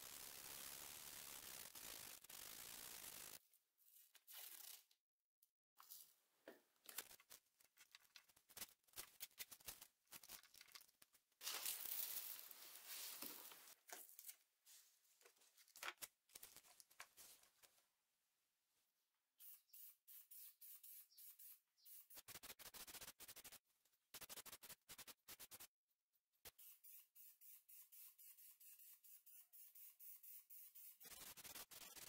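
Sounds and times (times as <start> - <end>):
paper crinkling: 6.8 - 14.4, 15.2 - 17.7
paper tearing and crumpling: 6.9 - 13.8.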